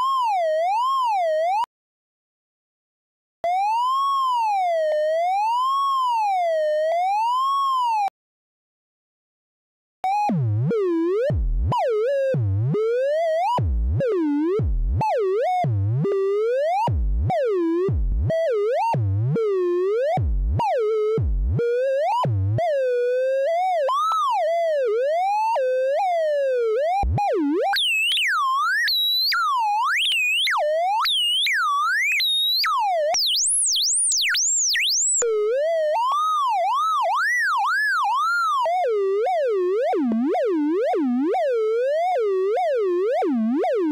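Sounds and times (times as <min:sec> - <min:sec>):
synthesizer tone swooping in pitch: 0:27.8 - 0:35.2.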